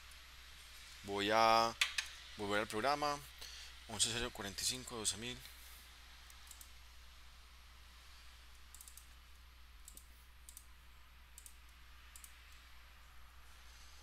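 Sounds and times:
faint low hum: 0:00.0 - 0:14.0
computer mouse clicking: 0:06.3 - 0:06.8, 0:08.5 - 0:09.2, 0:09.8 - 0:10.7, 0:11.3 - 0:12.7.

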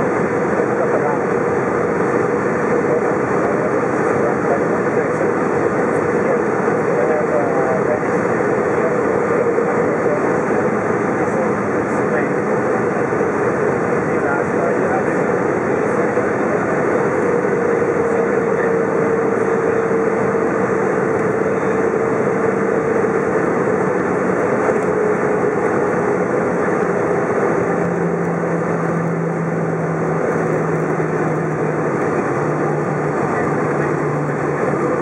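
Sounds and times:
aircraft cabin airflow rush: 0:00.0 - 0:35.0
jet engine drone: 0:00.0 - 0:35.0
low hum: 0:16.6 - 0:35.0.

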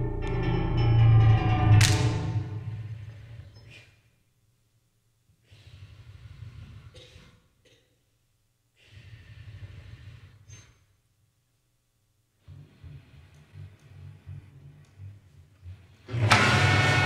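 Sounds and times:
low rumble: 0:00.0 - 0:03.4.

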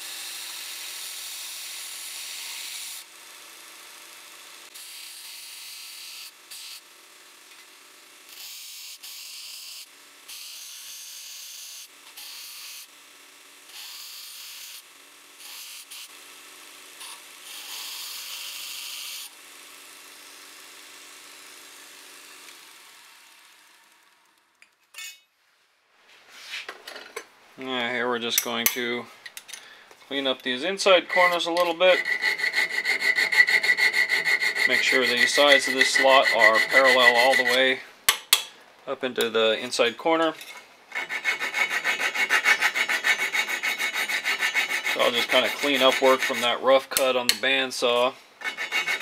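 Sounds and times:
belt grinder running: 0:00.0 - 0:24.2, 0:31.0 - 0:37.8, 0:40.9 - 0:49.0
hissing grinding of steel: 0:30.4 - 0:37.8, 0:40.4 - 0:49.0.

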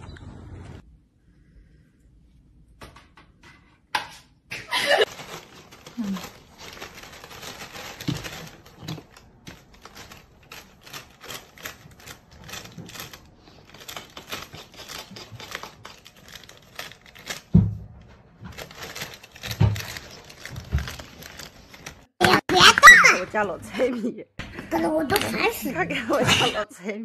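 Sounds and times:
plastic bag crinkling: 0:05.0 - 0:17.7, 0:18.3 - 0:22.1.

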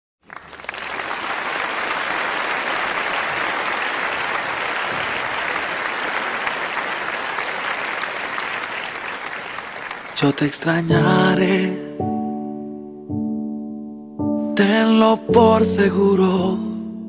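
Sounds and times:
audience applauding: 0:00.2 - 0:10.9.

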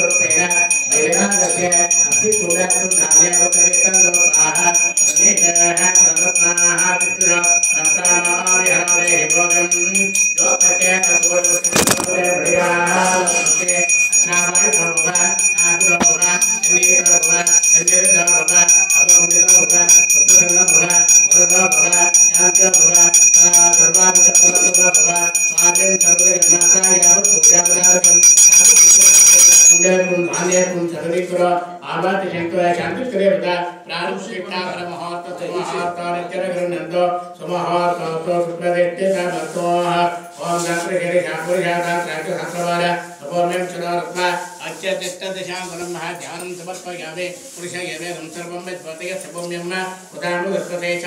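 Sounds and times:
men chanting into a microphone: 0:00.0 - 0:28.0, 0:29.9 - 0:51.0
hand bell ringing: 0:00.0 - 0:30.8
sharp knock: 0:11.7 - 0:12.4, 0:16.0 - 0:16.4.

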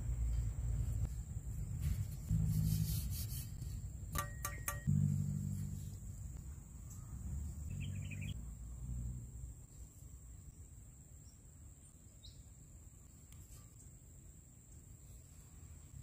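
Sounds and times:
low rumbling: 0:00.0 - 0:04.1, 0:04.8 - 0:09.6
bird chirp: 0:06.8 - 0:08.4, 0:10.5 - 0:12.6.

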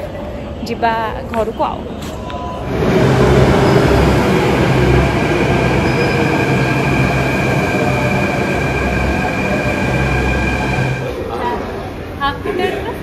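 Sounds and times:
train wheels rumbling: 0:02.5 - 0:11.5
thin high whine: 0:02.6 - 0:11.4.

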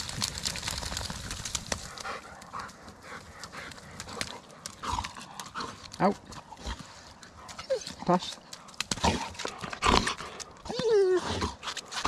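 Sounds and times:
dog panting: 0:01.9 - 0:08.3.

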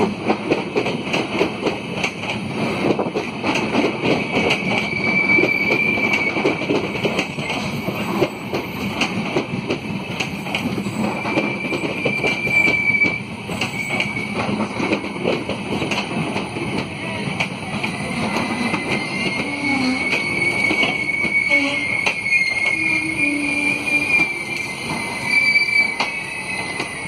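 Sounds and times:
train coaches rolling past: 0:00.0 - 0:27.0
high-pitched wheel squeal: 0:04.8 - 0:06.4, 0:11.0 - 0:14.4, 0:18.6 - 0:27.0.

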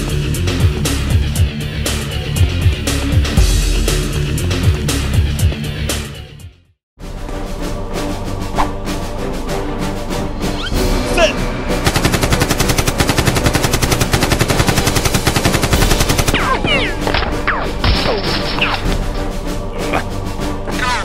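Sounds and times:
background music: 0:00.0 - 0:21.0
automatic gunfire: 0:11.8 - 0:16.6.

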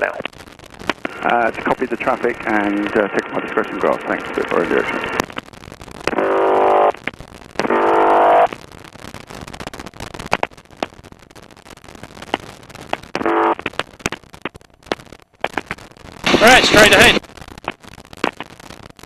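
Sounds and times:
radio clicks and crackle: 0:00.0 - 0:19.0
buzzing bursts of radio engine noise: 0:16.3 - 0:17.2.

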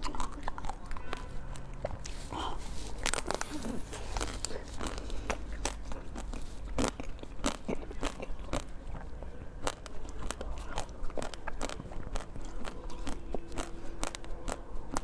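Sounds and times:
crunching frozen chocolate bar: 0:00.0 - 0:15.0.

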